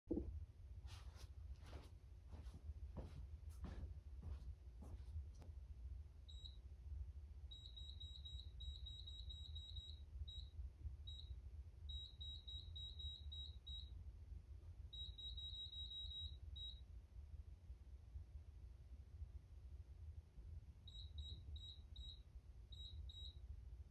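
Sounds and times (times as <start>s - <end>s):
faint low hum: 0.1s - 23.9s
high electronic scoreboard beeps: 7.5s - 10.5s.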